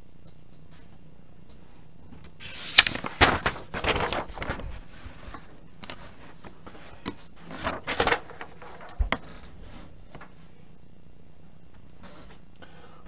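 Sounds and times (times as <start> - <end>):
papers rustling: 2.1 - 10.4.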